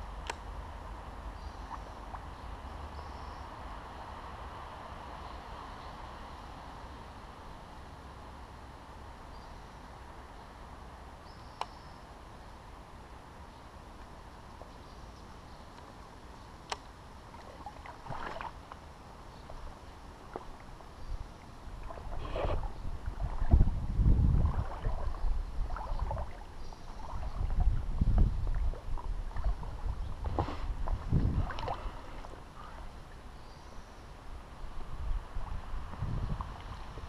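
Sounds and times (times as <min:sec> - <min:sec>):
creek water sloshing and splashing: 0:17.1 - 0:33.4
low rumbling: 0:19.6 - 0:33.3.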